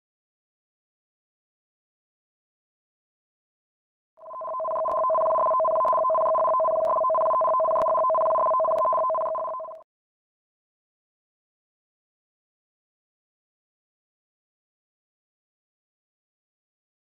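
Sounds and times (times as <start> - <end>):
two-tone electronic alert tone: 4.2 - 9.8.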